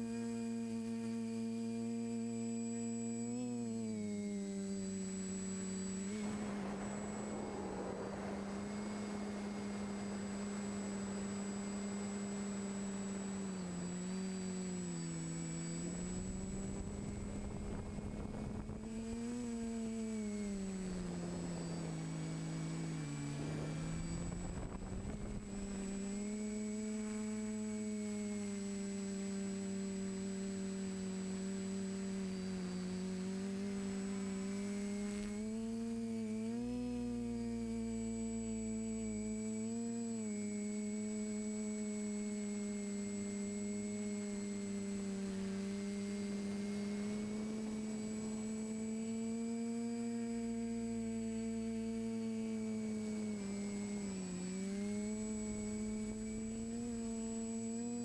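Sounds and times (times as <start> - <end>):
drone motors and propellers humming: 0.0 - 58.0
rush of air: 6.1 - 11.7.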